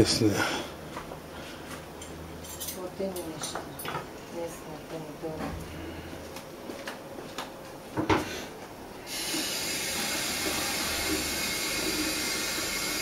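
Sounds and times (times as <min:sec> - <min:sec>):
steady hiss: 0:09.0 - 0:13.0.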